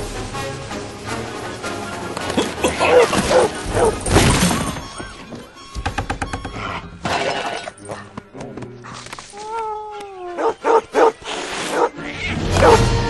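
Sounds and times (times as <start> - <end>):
background music: 0.0 - 13.0
dog barking: 2.8 - 4.0, 10.4 - 11.9, 12.6 - 12.8.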